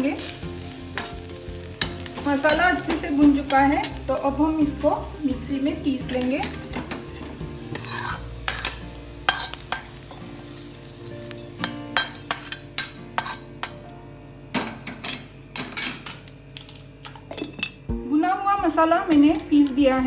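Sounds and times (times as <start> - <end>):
steel spoon scraping and clinking: 6.1 - 10.7, 11.6 - 13.8.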